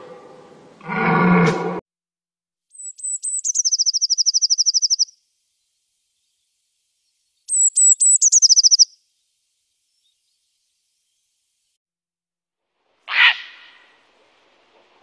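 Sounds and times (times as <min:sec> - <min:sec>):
bird singing high notes and trill: 0:02.7 - 0:11.3.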